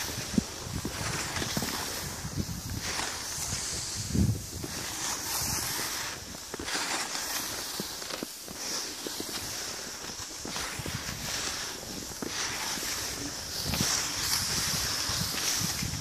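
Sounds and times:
wind rumbling on microphone: 0:00.0 - 0:06.6, 0:10.0 - 0:16.0
skis swishing over packed snow: 0:00.0 - 0:16.0.

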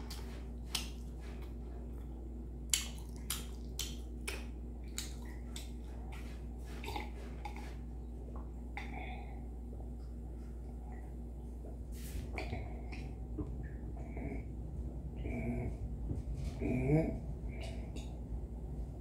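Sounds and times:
steady low hum: 0:00.0 - 0:19.0
person gulping milk: 0:02.7 - 0:09.4.

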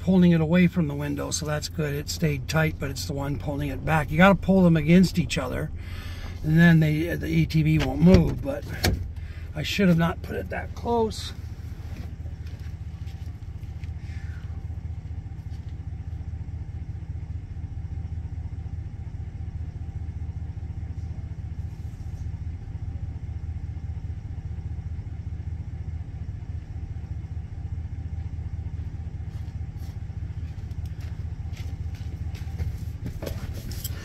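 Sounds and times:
pickup truck engine idling: 0:00.0 - 0:34.0.

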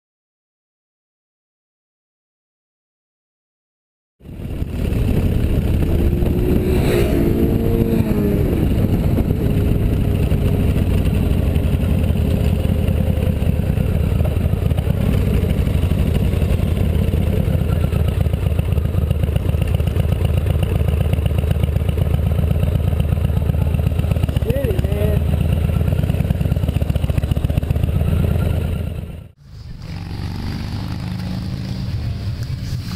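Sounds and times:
wind rumble on microphone: 0:04.2 - 0:11.6
motorcycle engine running: 0:04.2 - 0:32.9.

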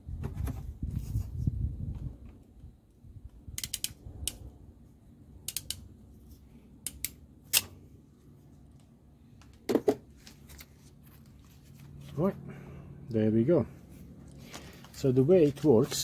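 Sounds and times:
crimping pliers clicking: 0:03.6 - 0:04.4, 0:05.5 - 0:05.8, 0:06.8 - 0:07.7.

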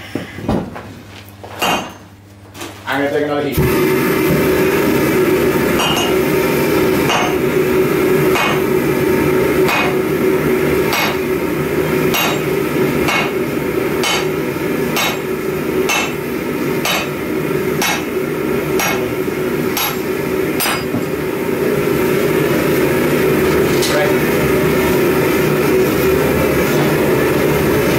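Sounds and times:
steady hum: 0:00.0 - 0:27.9
sledgehammer striking metal tool: 0:01.6 - 0:02.0, 0:05.8 - 0:06.2, 0:07.1 - 0:07.4, 0:08.3 - 0:08.7, 0:09.7 - 0:10.0, 0:10.9 - 0:11.2, 0:12.1 - 0:12.5, 0:13.1 - 0:13.4, 0:14.0 - 0:14.3, 0:15.0 - 0:15.3, 0:15.9 - 0:16.2, 0:16.8 - 0:17.1, 0:17.8 - 0:18.1, 0:18.8 - 0:19.1, 0:19.8 - 0:21.0.

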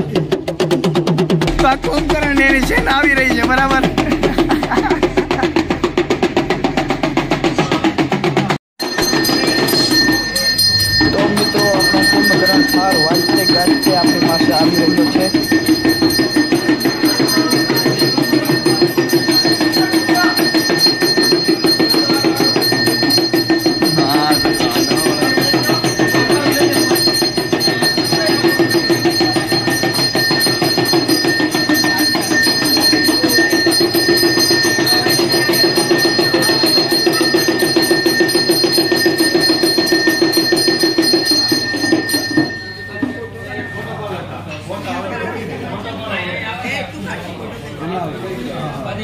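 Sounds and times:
rapid hand drum rattling: 0:00.0 - 0:43.7
high ringing: 0:01.4 - 0:08.1, 0:08.8 - 0:45.2.

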